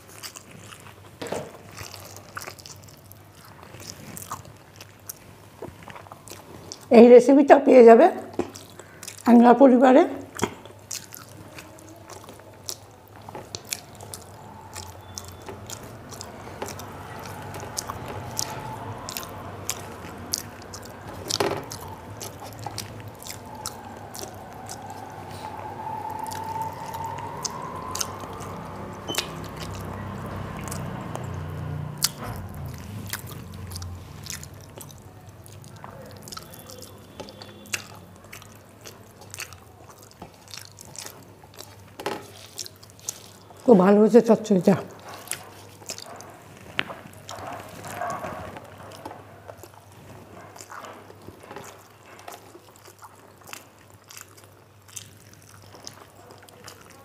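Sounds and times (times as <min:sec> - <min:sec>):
person chewing food: 0:00.0 - 0:06.9, 0:08.3 - 0:09.3, 0:10.2 - 0:43.7, 0:44.9 - 0:57.0
wet lip smacks: 0:10.4 - 0:43.6.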